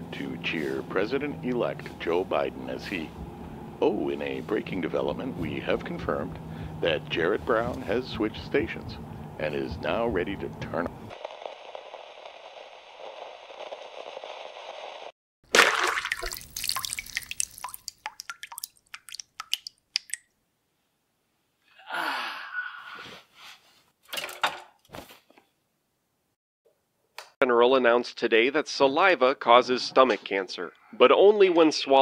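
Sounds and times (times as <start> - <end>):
loud liquid splash: 15.4 - 20.2
water dripping: 15.5 - 20.4.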